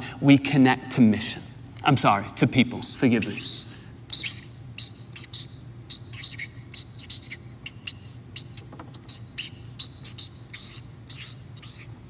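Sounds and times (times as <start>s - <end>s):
low steady hum: 0.0s - 12.0s
marker squeaking on paper: 3.1s - 12.0s.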